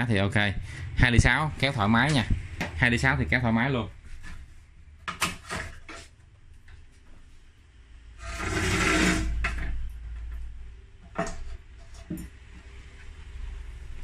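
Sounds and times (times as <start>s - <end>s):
metal case scraping on workbench: 8.2s - 9.8s.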